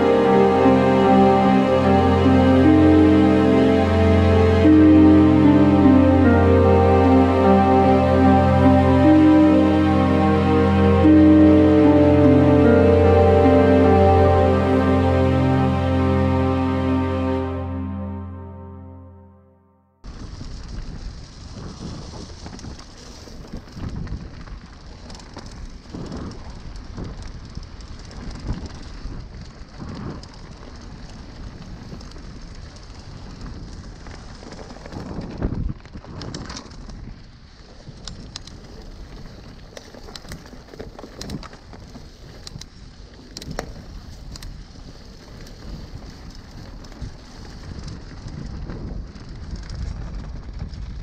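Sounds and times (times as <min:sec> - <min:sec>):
wind on microphone: 0:20.1 - 0:40.5, 0:41.2 - 0:51.0
bike tyres rumbling on trail: 0:20.1 - 0:51.0.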